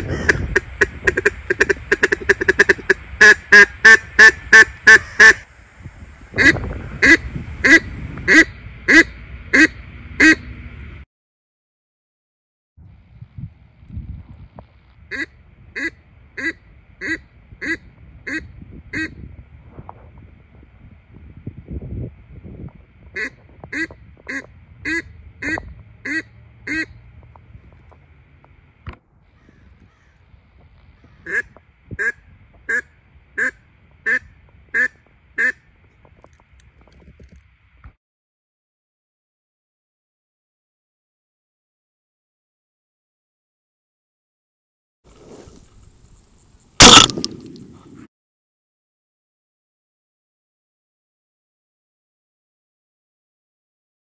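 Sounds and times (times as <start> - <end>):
duck call quacking: 0.0 - 5.4, 6.4 - 10.5, 15.1 - 19.2, 23.2 - 27.0, 31.0 - 35.7, 46.8 - 47.1
sharp click: 46.8 - 47.7.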